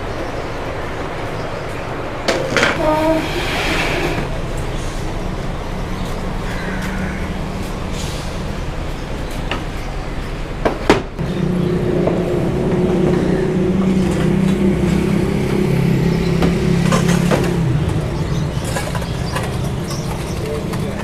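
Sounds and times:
street traffic noise: 0.0s - 21.0s
vehicle engine running: 4.2s - 21.0s.

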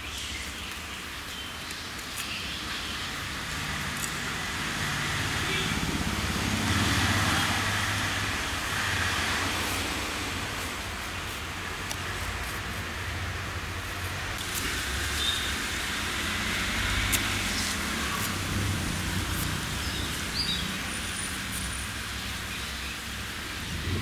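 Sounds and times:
bird chirping: 19.7s - 23.1s.

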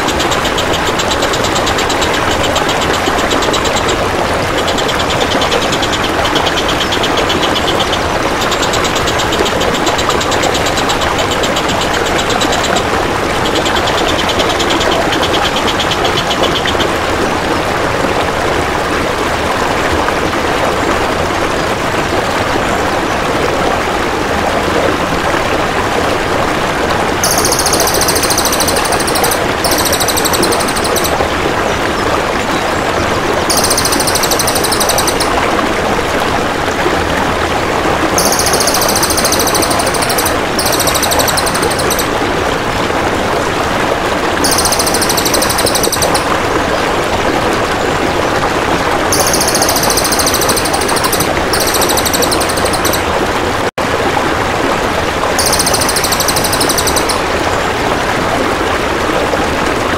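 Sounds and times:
bird high rapid trilling call: 0.0s - 17.0s, 27.2s - 31.3s, 33.5s - 35.4s, 38.2s - 42.2s, 44.4s - 46.3s, 49.1s - 53.0s, 55.4s - 57.3s
flowing water rushing: 0.0s - 59.9s.

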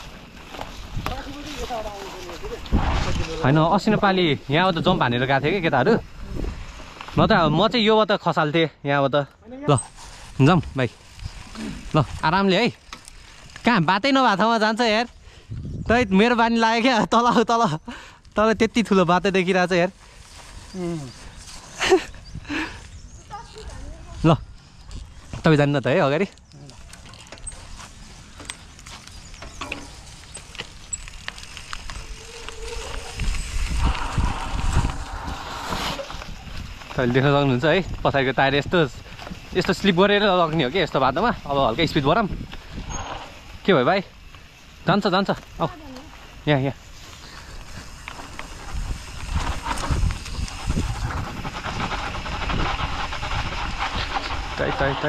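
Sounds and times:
bike rolling on dirt trail: 0.0s - 8.7s, 9.3s - 55.0s
wind on microphone: 0.7s - 7.7s, 15.4s - 16.2s, 31.7s - 43.6s, 47.6s - 55.0s
bike clicks and knocks: 26.7s - 33.7s.

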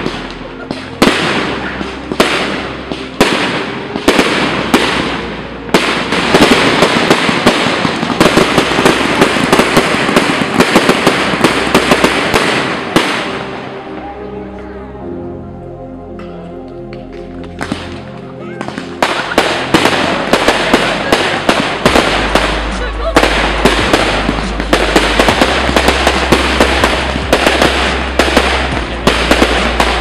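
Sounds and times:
firework barrage bangs and crackles: 0.0s - 13.7s, 17.6s - 18.0s, 18.6s - 30.0s
firework shells bursting: 5.8s - 13.3s.

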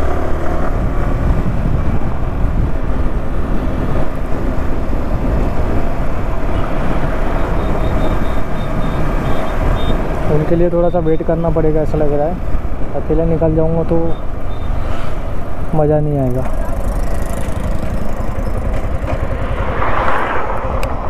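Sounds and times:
wind rush: 0.0s - 10.5s, 16.7s - 21.0s
vehicle road noise: 0.0s - 21.0s.

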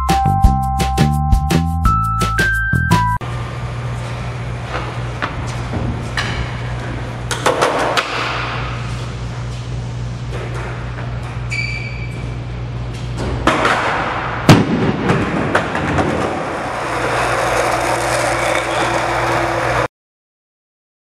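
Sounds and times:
skateboard clatter: 7.3s - 8.5s, 15.0s - 19.9s
skateboard wheels rolling rumble: 14.9s - 19.9s.

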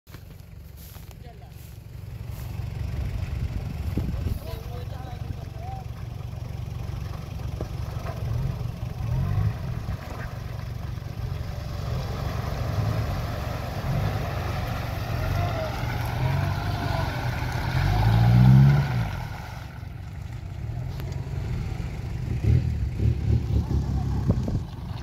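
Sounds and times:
off-road vehicle engine revving: 2.0s - 25.0s.

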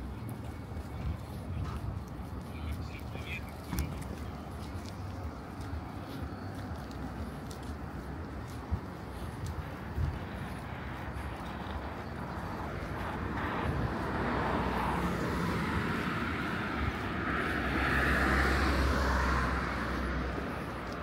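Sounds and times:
motor vehicle passing by: 4.6s - 21.0s.

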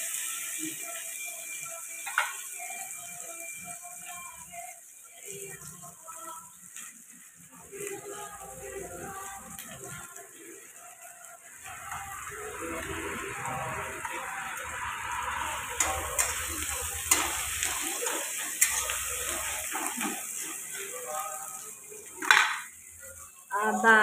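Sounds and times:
onions sizzling in hot oil: 0.0s - 24.0s
metal spatula scraping wok: 11.6s - 21.2s.

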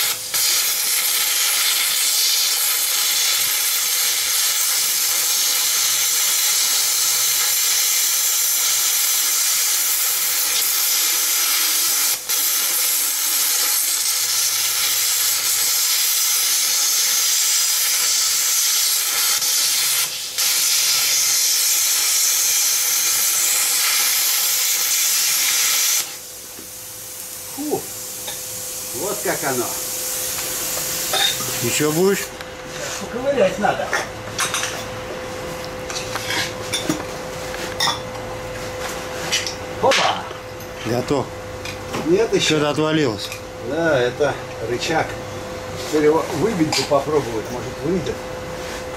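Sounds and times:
plasma cutter arc hissing: 0.0s - 32.4s.

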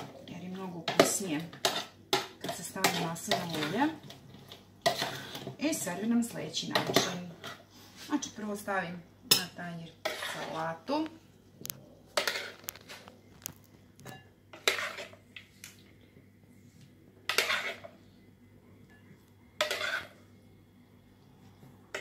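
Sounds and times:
metal spoon scraping plastic bowl: 0.9s - 5.9s, 10.0s - 10.8s, 12.1s - 13.1s, 14.5s - 15.2s, 17.3s - 17.9s, 19.6s - 20.2s.

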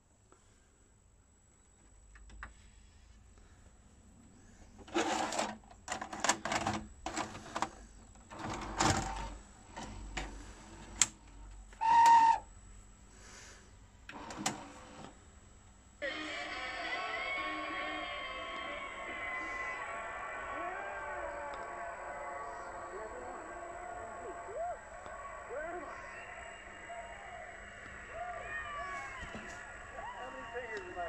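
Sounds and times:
mechanical clicks and clunks: 4.8s - 11.5s
video cassette recorder loading tape: 4.8s - 12.4s, 14.1s - 15.2s.

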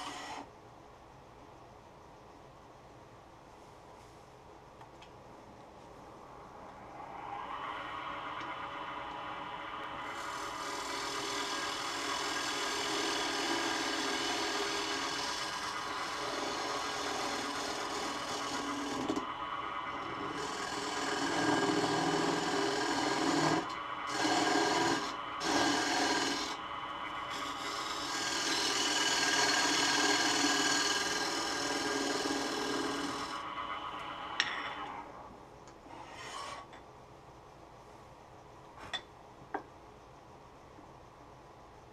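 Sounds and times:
lathe humming: 0.0s - 0.4s, 6.2s - 35.3s
turning tool scraping wood: 10.0s - 19.2s, 19.9s - 33.4s, 35.9s - 36.8s.

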